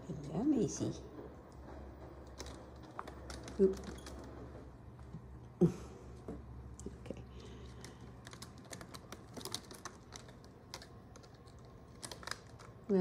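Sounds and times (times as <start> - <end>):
claws clicking and scratching: 7.5 - 13.0.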